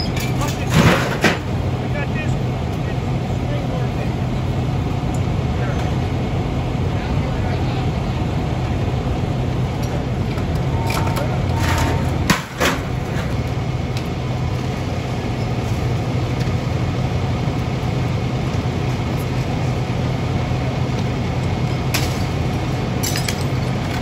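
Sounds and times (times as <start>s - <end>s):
fire engine motor rumbling: 0.0s - 24.0s.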